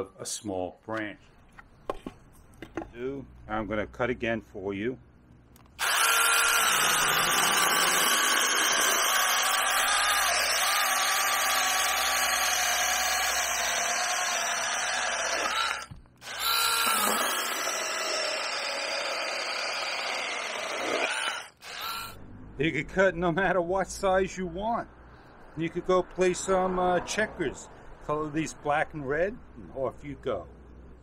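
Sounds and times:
mini chainsaw cutting branch: 5.8s - 22.2s.

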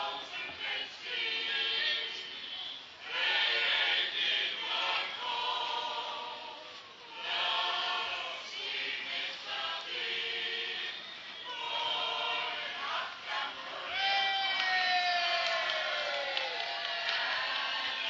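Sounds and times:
choir singing: 0.0s - 14.1s.

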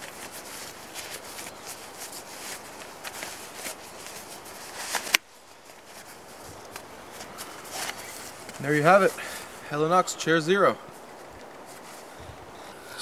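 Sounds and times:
fabric rustling: 0.0s - 13.0s.

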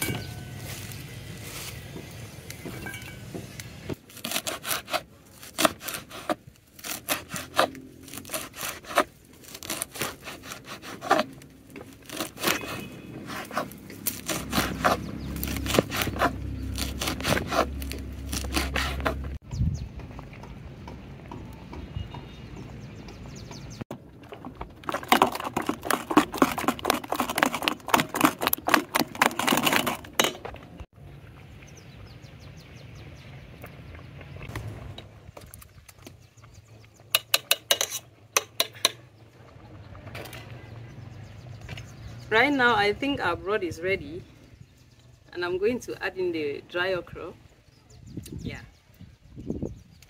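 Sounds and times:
scraping and rubbing in a bowl: 4.2s - 19.4s, 24.4s - 30.6s, 37.2s - 39.0s.

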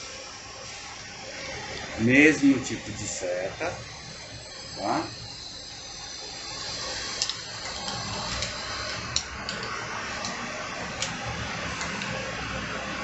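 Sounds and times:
crossbow clicks and ticks: 7.2s - 10.4s, 11.8s - 12.2s.

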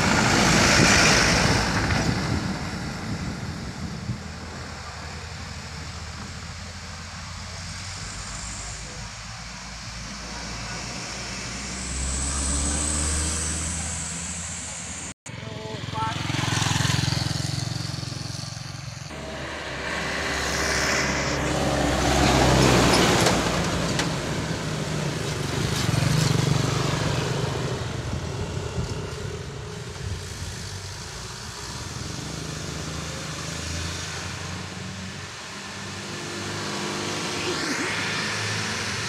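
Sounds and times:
wind noise: 0.0s - 8.6s, 19.1s - 32.2s
motorcycle engines running: 0.0s - 39.0s
traffic: 0.0s - 39.0s.

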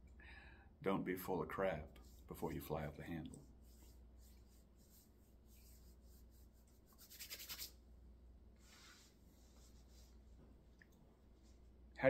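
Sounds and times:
faint room hum: 0.0s - 12.0s
soft airy rustle: 1.8s - 7.8s, 8.5s - 11.8s.

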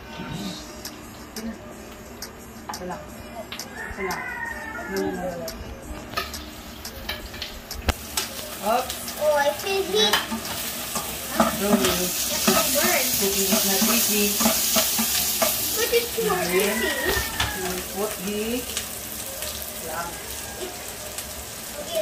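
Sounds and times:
vegetables sizzling in oil: 6.6s - 22.0s.

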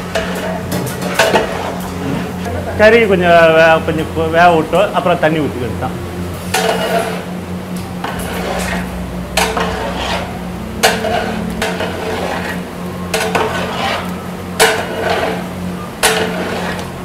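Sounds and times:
ladle scraping a metal pot: 0.0s - 2.4s, 6.4s - 7.3s, 8.0s - 17.0s
steady low hum: 0.0s - 17.0s.

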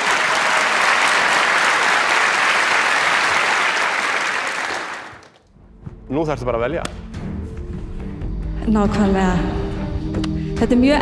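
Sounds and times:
studio audience applauding: 0.0s - 5.4s.

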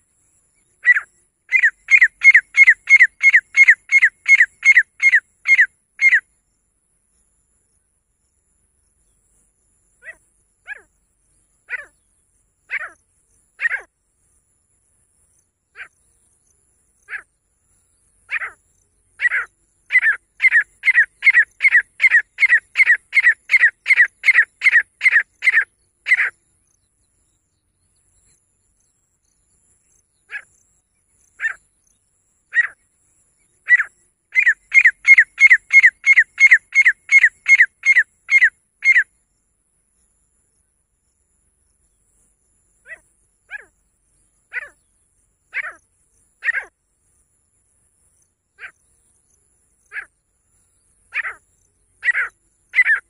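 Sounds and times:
francolin calling: 0.2s - 6.4s, 10.0s - 13.9s, 15.7s - 26.8s, 27.9s - 39.2s, 42.8s - 47.2s, 48.0s - 53.0s.

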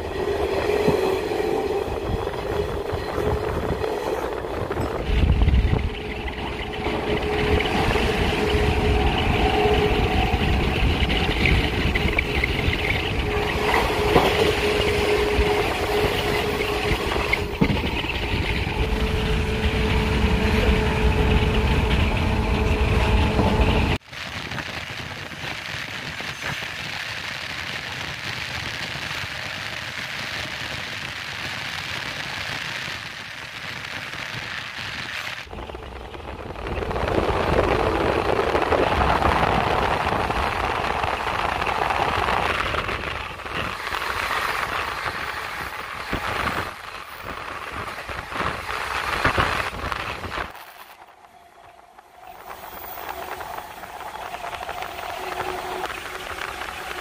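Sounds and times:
train rolling on rails: 0.0s - 57.0s
wind rush: 0.0s - 57.0s.

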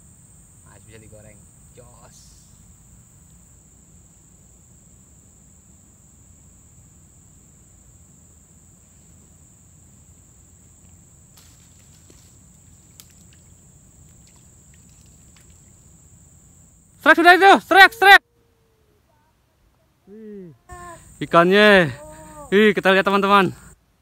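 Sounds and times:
insects droning: 0.0s - 24.0s.

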